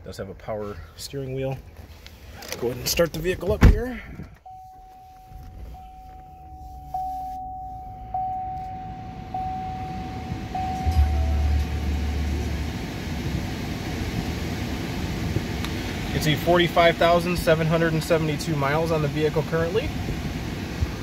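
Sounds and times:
car engine starting and idling: 1.4s - 21.0s
vehicle warning chime: 4.4s - 12.8s.

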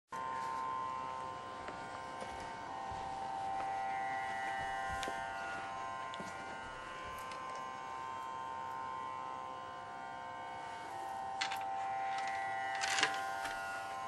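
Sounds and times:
buzzing musical drone: 0.1s - 14.0s.

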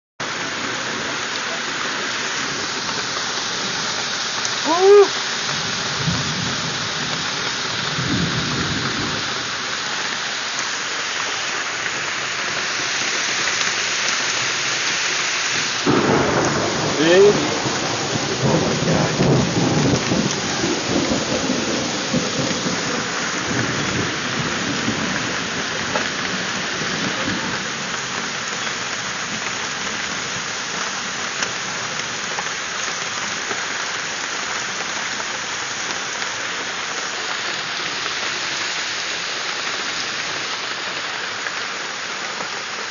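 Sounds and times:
heavy rain pouring: 0.2s - 42.9s
thunder rumble: 4.6s - 9.4s, 15.8s - 27.9s.

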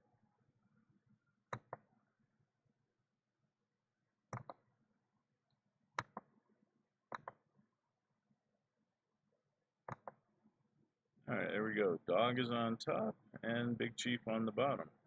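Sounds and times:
computer mouse clicking: 4.3s - 4.6s, 7.1s - 7.4s.

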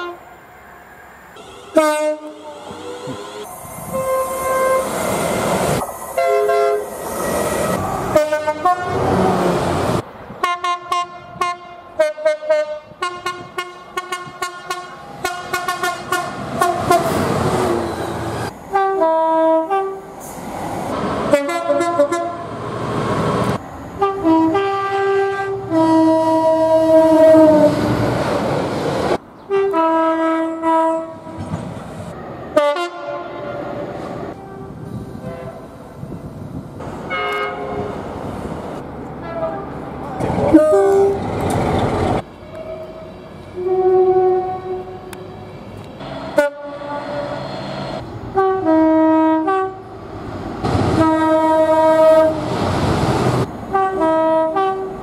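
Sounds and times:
train horns tooting: 0.0s - 0.3s, 1.4s - 5.0s, 6.2s - 6.9s, 8.1s - 9.2s, 10.4s - 20.0s, 21.3s - 22.5s, 24.0s - 28.0s, 29.5s - 31.5s, 32.5s - 35.8s, 37.1s - 38.0s, 39.2s - 39.8s, 40.5s - 41.2s, 42.5s - 45.2s, 46.2s - 50.0s, 51.0s - 52.5s, 53.7s - 55.0s
trains passing: 0.0s - 55.0s.

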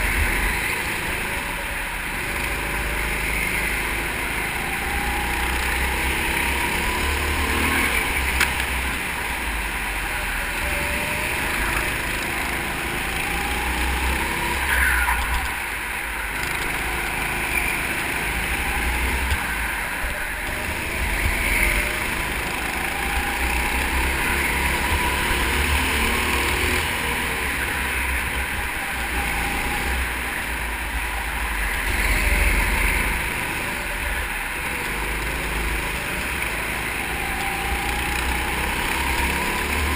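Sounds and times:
go-kart engine running: 0.0s - 39.9s
low rumble: 13.0s - 25.5s.

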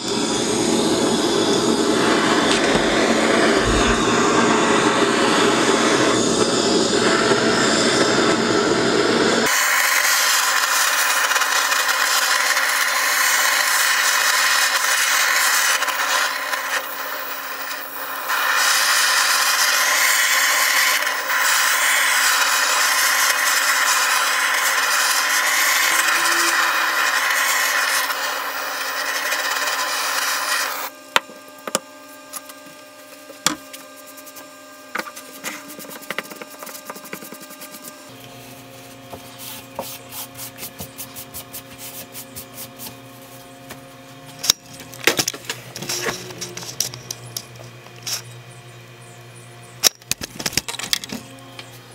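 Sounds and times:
blowtorch hissing: 0.0s - 31.0s.

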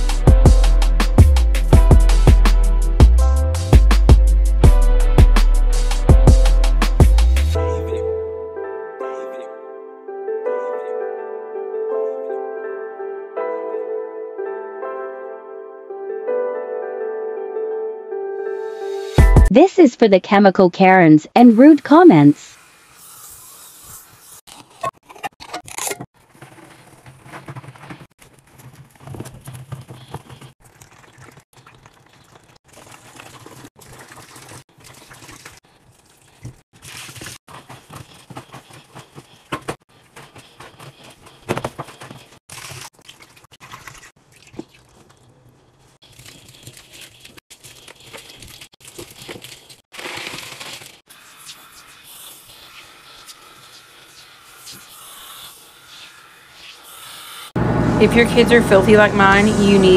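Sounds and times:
sponge scrubbing steel sink: 21.6s - 25.6s, 26.2s - 45.3s, 46.0s - 57.5s.

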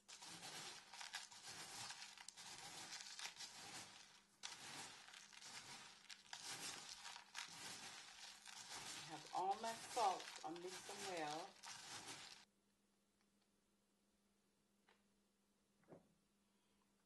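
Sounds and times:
salt crystals crunching: 0.0s - 12.5s.

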